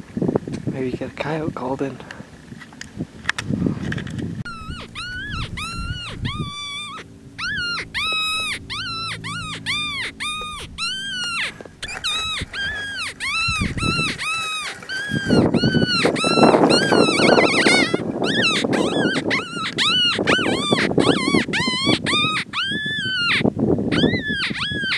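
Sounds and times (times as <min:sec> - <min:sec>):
predator call whining yelps: 0:04.5 - 0:24.9.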